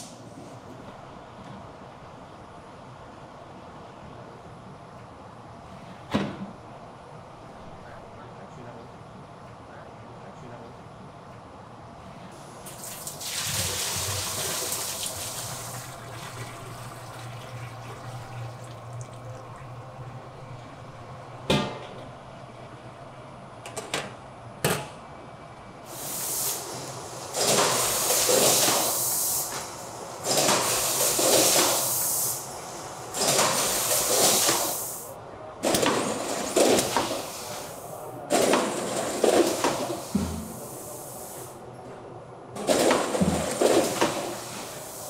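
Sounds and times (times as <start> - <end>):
liquid pouring into metal tank: 12.7 - 20.2
low machine hum: 13.7 - 25.9.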